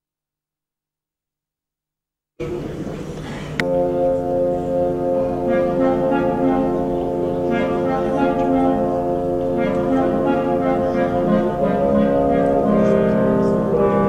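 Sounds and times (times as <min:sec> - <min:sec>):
orchestra with brass chords: 0:03.6 - 0:14.0.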